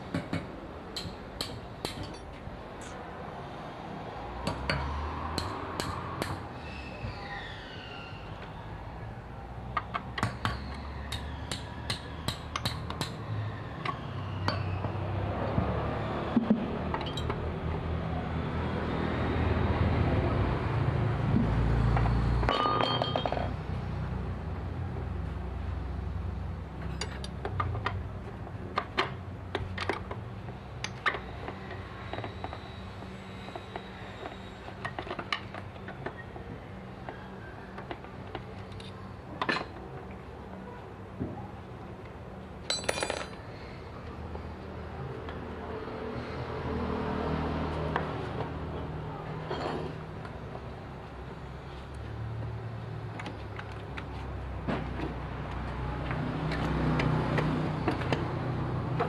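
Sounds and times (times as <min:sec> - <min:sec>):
metal tools clinking and tapping: 0:01.0 - 0:03.0, 0:16.9 - 0:17.4, 0:22.5 - 0:23.6, 0:26.8 - 0:28.0, 0:42.7 - 0:43.4.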